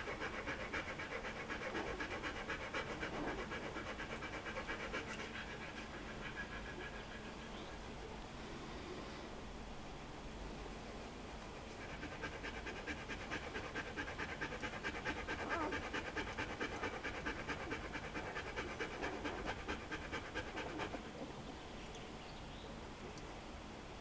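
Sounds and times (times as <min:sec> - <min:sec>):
dog panting: 0:00.0 - 0:08.0, 0:11.4 - 0:21.3.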